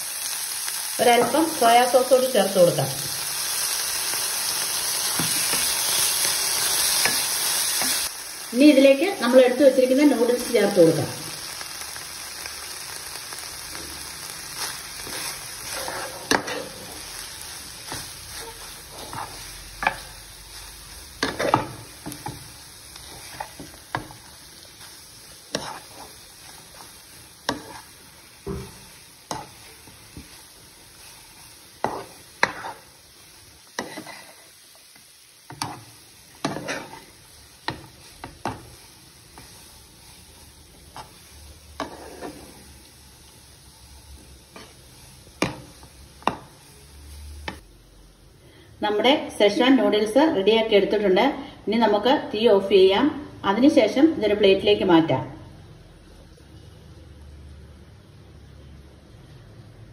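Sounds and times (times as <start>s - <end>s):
food sizzling in a frying pan: 0.0s - 59.9s
spatula scraping a pan: 14.6s - 34.7s, 35.5s - 42.8s, 44.5s - 46.6s.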